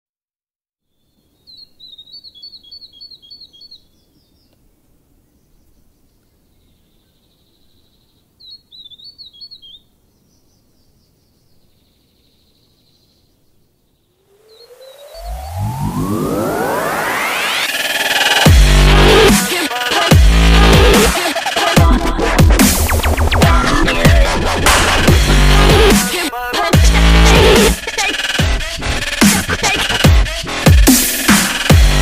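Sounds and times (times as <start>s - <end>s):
small bird chirping: 0.8s - 4.6s, 5.3s - 15.6s
faint background noise: 0.8s - 15.2s.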